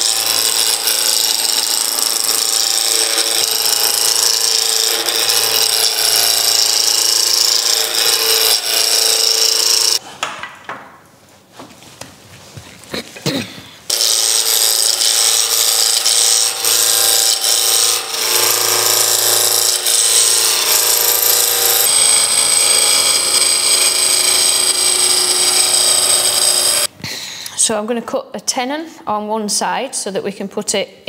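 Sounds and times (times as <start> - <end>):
gouge cutting wood on lathe: 0.0 - 10.0, 13.9 - 26.9.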